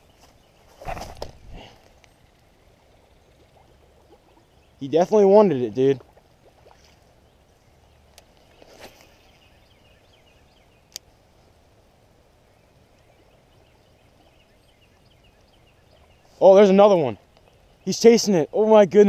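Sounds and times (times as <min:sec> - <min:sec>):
faint distant birds calling: 0:00.0 - 0:18.9
brief rustle: 0:00.2 - 0:02.1, 0:08.4 - 0:09.3.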